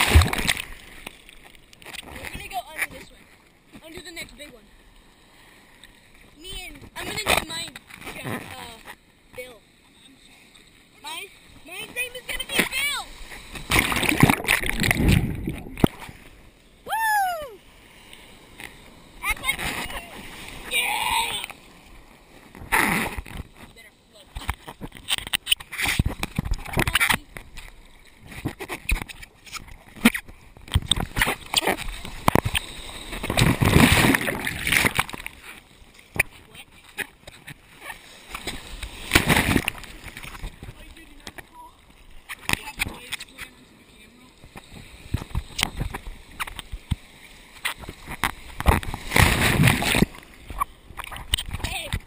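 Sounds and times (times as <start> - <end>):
loud rushing splash: 0.0 - 0.9
ocean surf splashing: 0.0 - 1.4, 2.0 - 24.9, 29.6 - 52.0.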